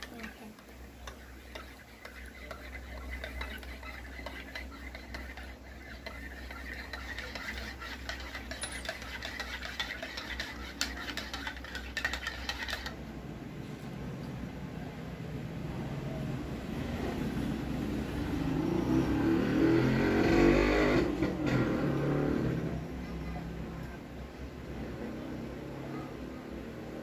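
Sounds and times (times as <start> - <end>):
spoon clinking in a ceramic mug: 8.4 - 10.1.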